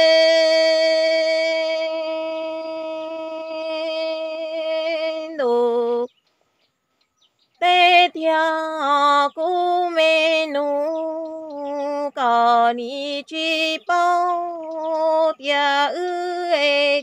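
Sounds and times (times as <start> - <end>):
woman singing unaccompanied: 0.0 - 6.3, 7.5 - 17.0.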